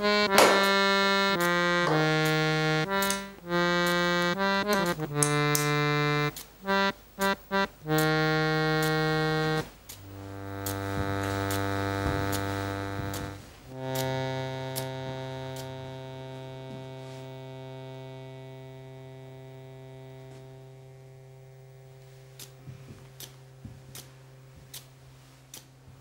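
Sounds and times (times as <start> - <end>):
low musical drone chord: 7.9 - 22.4.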